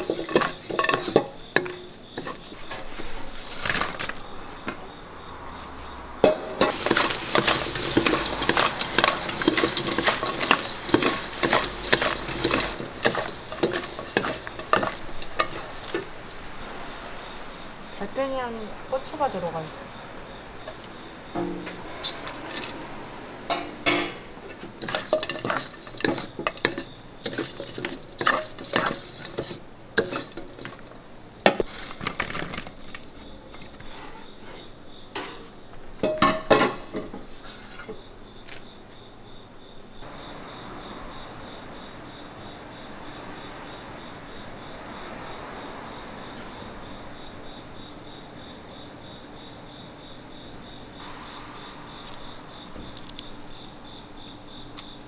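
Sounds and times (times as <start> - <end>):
wooden spatula scraping a wok: 0.0 - 4.2, 5.5 - 16.6, 20.6 - 22.8, 23.5 - 32.7, 33.6 - 38.1
steady hiss: 6.5 - 23.5.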